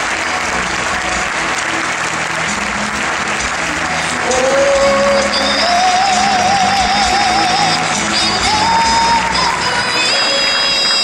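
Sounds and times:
stadium crowd applauding: 0.0 - 11.0.

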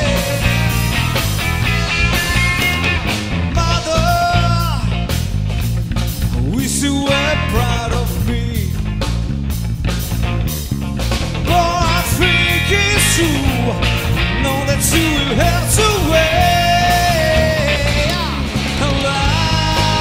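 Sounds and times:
electric guitar solo: 0.0 - 5.0, 11.5 - 20.0
bass guitar: 0.0 - 20.0
drums: 0.0 - 20.0.

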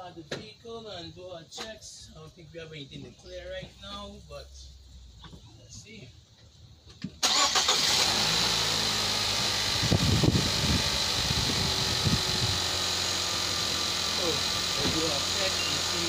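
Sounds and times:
car engine starting and idling: 7.0 - 16.0.

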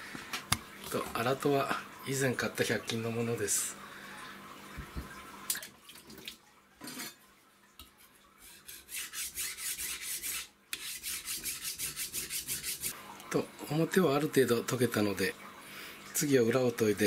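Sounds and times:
knife blade scraping on whetstone: 8.5 - 13.0.

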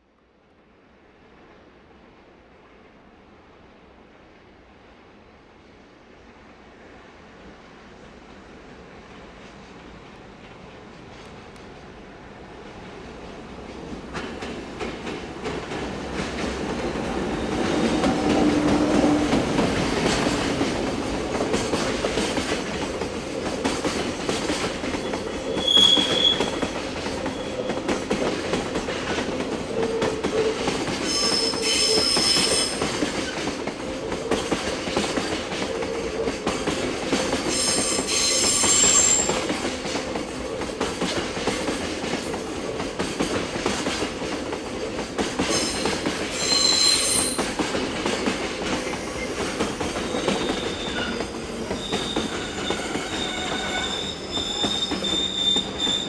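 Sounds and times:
train wheels clattering: 13.6 - 56.0
wheel squeals: 25.0 - 26.6, 37.6 - 39.4, 45.6 - 47.4, 50.0 - 56.0.

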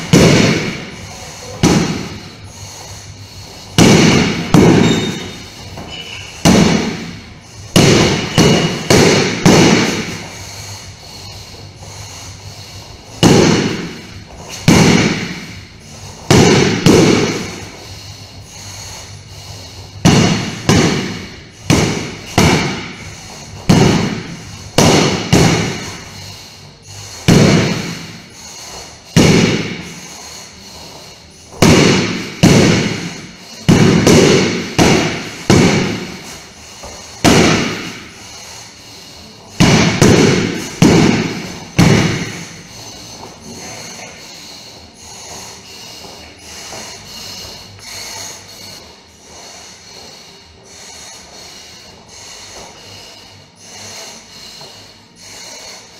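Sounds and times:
sword thudding on punching bag: 0.0 - 0.9, 1.6 - 2.3, 3.8 - 10.3, 13.2 - 15.6, 16.2 - 17.8, 20.0 - 26.0, 27.2 - 28.2, 29.1 - 30.0, 31.5 - 38.2, 39.6 - 43.3.

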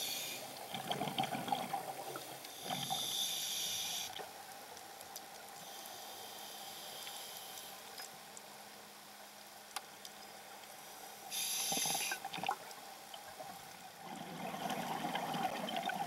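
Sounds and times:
regulator hissing inhale: 0.0 - 0.6, 2.4 - 4.2, 5.6 - 7.9, 11.3 - 12.3
exhaled bubbles burbling underwater: 0.7 - 2.8, 14.0 - 16.0
faint clicks: 4.1 - 6.0, 6.8 - 8.5, 9.4 - 10.8.

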